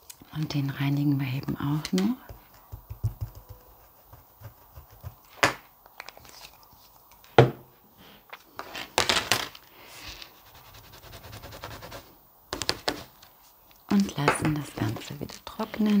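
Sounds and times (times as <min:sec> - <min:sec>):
sharp knocks on a mat: 0:02.3 - 0:05.6.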